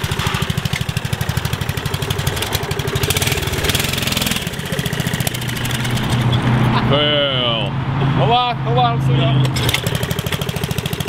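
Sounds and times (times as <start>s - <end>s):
small engine running: 0.0s - 6.4s, 9.6s - 11.0s.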